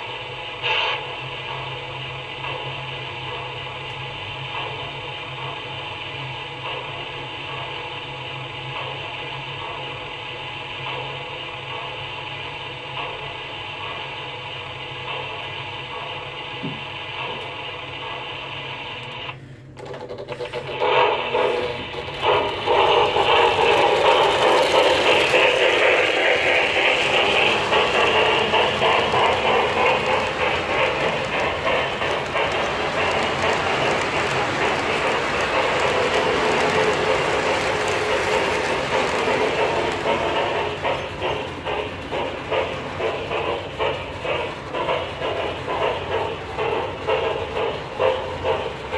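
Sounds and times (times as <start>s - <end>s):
model train wheels rumbling: 0.0s - 48.9s
model train motor hum: 20.1s - 48.9s.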